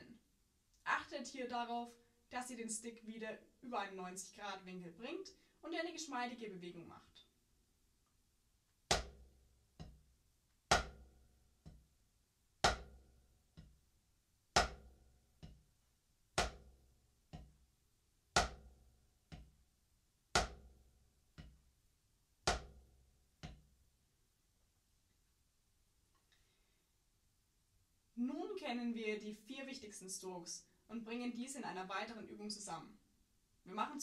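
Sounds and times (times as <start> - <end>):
drumsticks on practice pad: 8.9 - 10.0, 10.7 - 11.9, 12.6 - 13.0, 16.4 - 17.6, 18.4 - 18.7, 20.4 - 20.7, 22.4 - 22.8.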